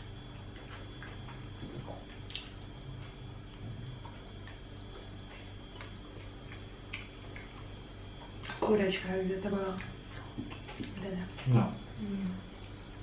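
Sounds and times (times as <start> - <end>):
chewing: 0.0 - 8.6, 9.7 - 13.0
clicks and smacks of eating: 0.0 - 8.8, 9.5 - 11.9
steady low hum: 0.0 - 13.0.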